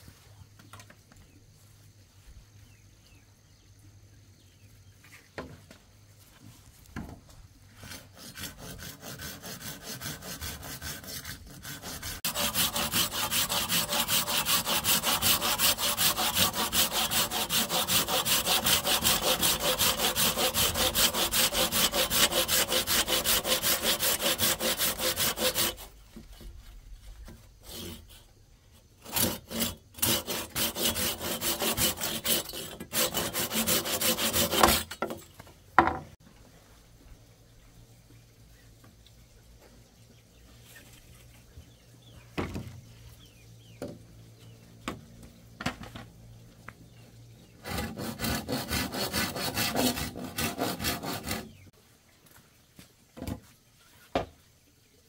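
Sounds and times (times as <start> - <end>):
hand saw cutting bamboo: 7.8 - 26.6, 27.3 - 28.3, 29.0 - 35.2, 47.5 - 51.7.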